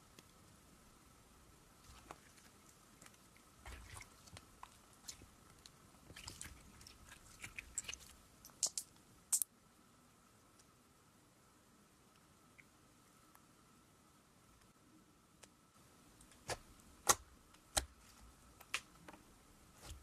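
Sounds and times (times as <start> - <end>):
slime squelching and clicking: 3.0 - 9.4.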